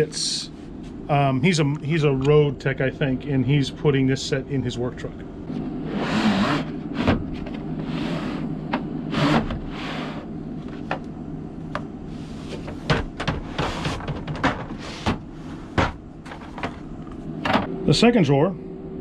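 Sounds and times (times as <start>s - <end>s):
plastic drawers sliding: 5.9s - 11.0s, 12.3s - 17.7s.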